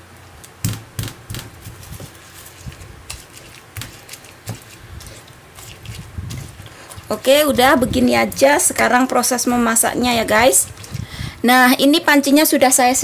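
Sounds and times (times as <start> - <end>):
stone pestle pounding in mortar: 0.6 - 2.1.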